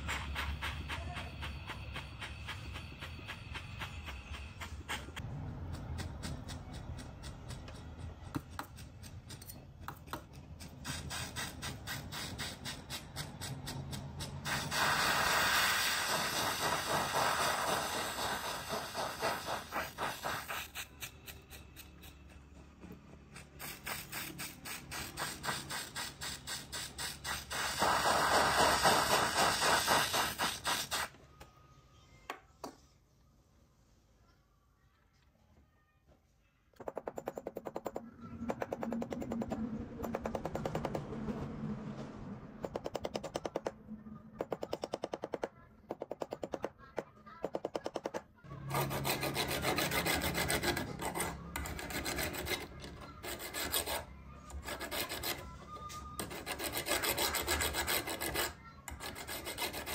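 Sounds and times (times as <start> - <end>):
torch flame hissing: 10.8 - 20.9, 23.6 - 31.1.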